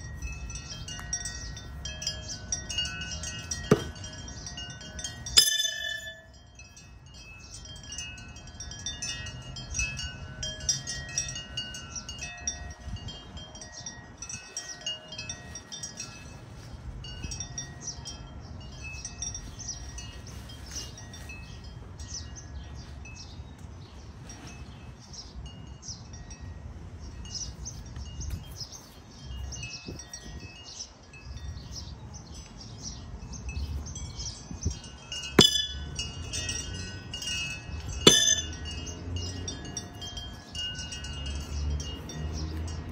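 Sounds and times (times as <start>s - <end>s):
wind chimes tinkling: 0.0s - 42.9s
knife hitting wooden target: 3.7s - 3.9s, 38.1s - 38.5s.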